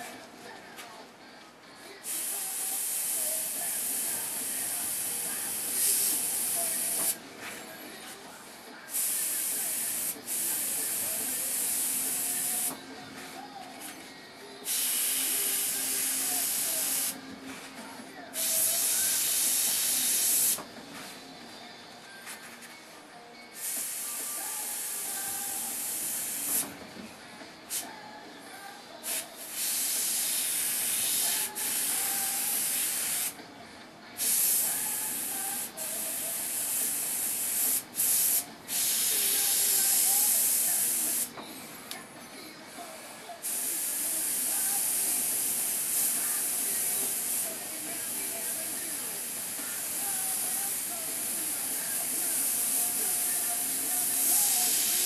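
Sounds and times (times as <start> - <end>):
airbrush hissing: 2.1 - 7.2, 8.9 - 12.8, 14.6 - 17.2, 18.4 - 20.6, 23.6 - 26.7, 29.0 - 33.4, 34.2 - 41.3, 43.4 - 55.0.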